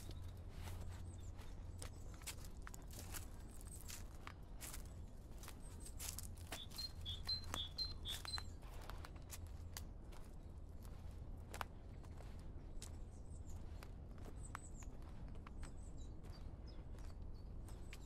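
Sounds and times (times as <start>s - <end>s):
footsteps crunching on path: 0.0s - 18.0s
bird chirping: 5.6s - 8.6s.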